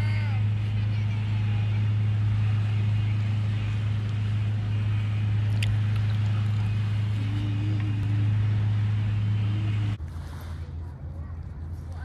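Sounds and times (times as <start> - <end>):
loud steady low hum: 0.0 - 12.0.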